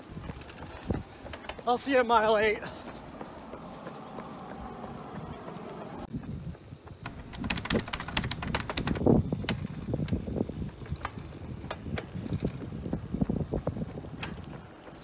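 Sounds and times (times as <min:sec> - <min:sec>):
running footsteps on asphalt: 0:00.0 - 0:15.0
sharp clicks: 0:07.0 - 0:10.2.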